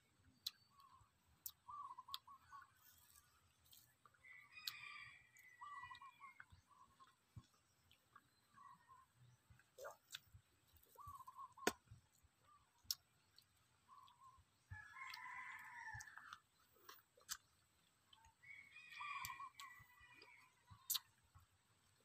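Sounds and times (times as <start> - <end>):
rooster crowing: 14.8 - 16.3.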